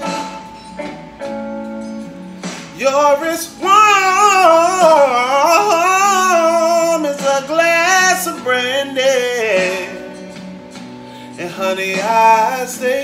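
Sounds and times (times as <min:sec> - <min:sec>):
guitar accompaniment: 0:00.0 - 0:13.0
man singing: 0:02.7 - 0:10.3, 0:11.4 - 0:13.0.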